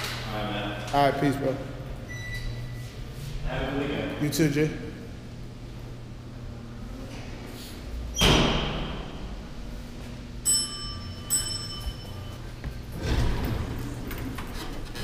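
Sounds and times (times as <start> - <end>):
elevator chime dings: 10.4 - 12.6.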